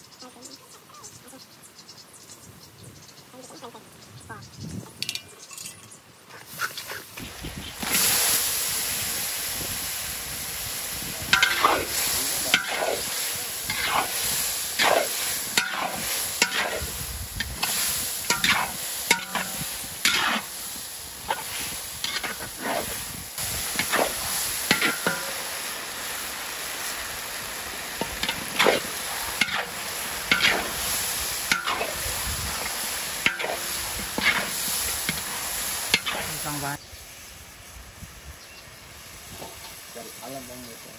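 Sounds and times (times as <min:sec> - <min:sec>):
paste frying with sizzle: 0:06.5 - 0:40.9
metal spatula scraping a wok: 0:11.2 - 0:25.4, 0:28.0 - 0:36.7.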